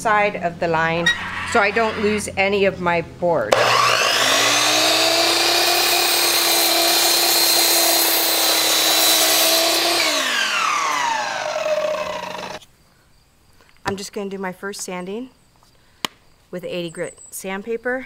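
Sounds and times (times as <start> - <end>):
saw blade spinning down: 1.0 - 2.3, 3.5 - 12.6
miter saw whining: 3.5 - 12.6.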